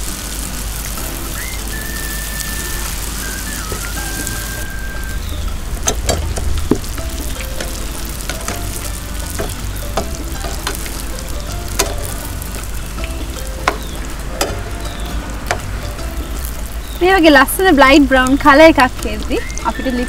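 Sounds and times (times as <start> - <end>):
food deep-frying in oil: 0.0 - 20.0
metal tongs clicking on pan: 9.4 - 11.0, 11.7 - 12.2.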